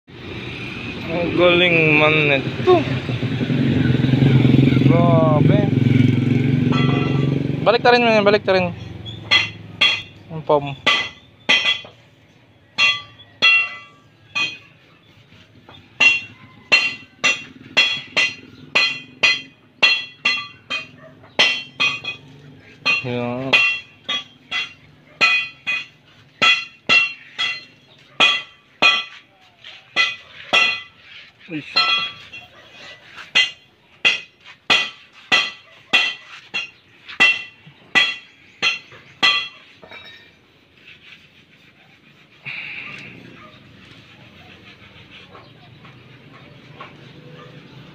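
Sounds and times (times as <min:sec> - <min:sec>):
ringing metallic strikes: 0:06.0 - 0:07.6, 0:08.8 - 0:10.2, 0:12.8 - 0:14.7, 0:16.0 - 0:29.2, 0:31.6 - 0:32.5, 0:33.3 - 0:40.3.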